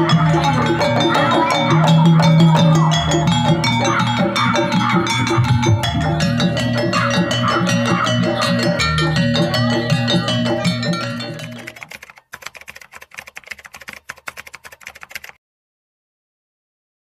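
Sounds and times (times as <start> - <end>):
gamelan music: 0.0 - 11.9
sparse tapping percussion: 0.0 - 15.4.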